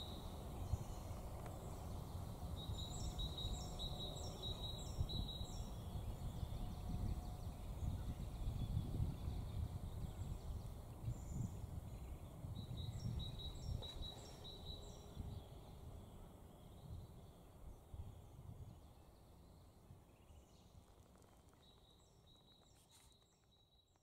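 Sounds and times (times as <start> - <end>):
small bird chirping: 8.1 - 15.2, 20.2 - 24.0.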